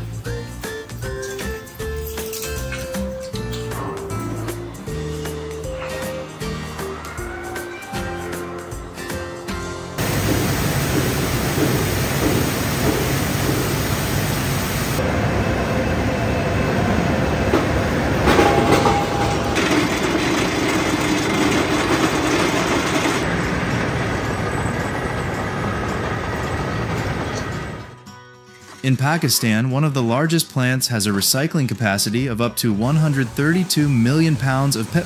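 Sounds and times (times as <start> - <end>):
steel bars clattering on rollers: 0.7 - 4.5, 10.0 - 15.0, 18.2 - 23.3
rolling mill machinery noise: 10.0 - 28.0, 32.7 - 35.0.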